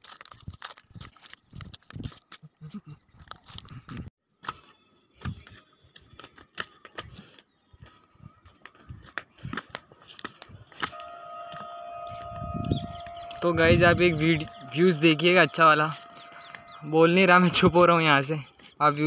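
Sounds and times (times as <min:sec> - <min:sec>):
footsteps on stone path: 0:05.2 - 0:13.4
faint steady tone: 0:10.9 - 0:18.0.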